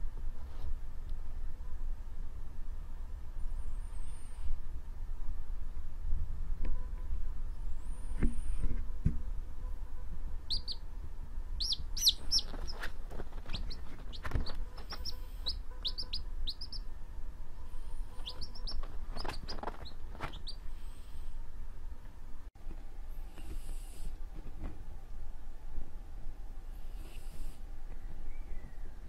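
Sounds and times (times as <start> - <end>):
low steady rumble: 0.0 - 29.0
baby chick peeping: 10.4 - 10.9, 11.6 - 21.2.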